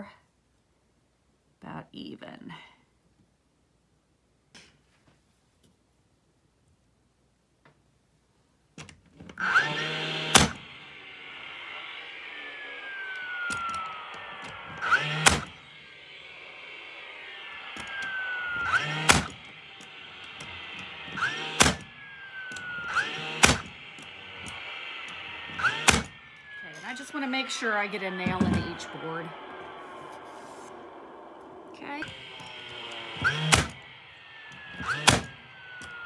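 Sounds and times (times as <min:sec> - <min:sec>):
brad nailer firing: 0:09.4 - 0:36.0.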